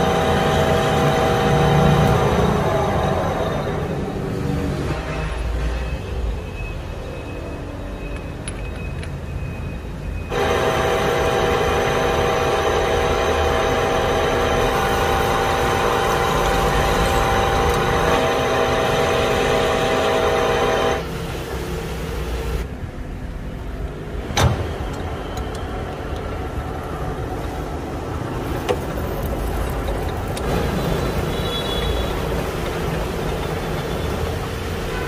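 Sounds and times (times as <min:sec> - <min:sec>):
lathe drilling metal whine: 0:00.0 - 0:04.0, 0:10.3 - 0:21.1.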